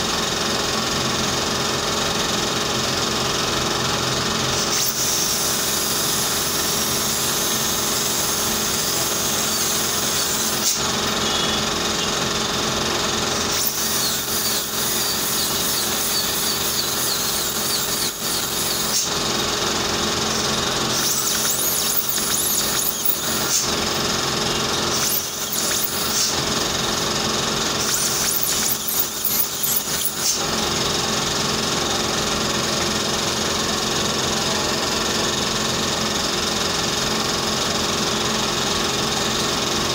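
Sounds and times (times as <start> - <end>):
steady mechanical hum: 0.0 - 39.9
dental drill whining: 4.6 - 12.4, 13.2 - 30.9.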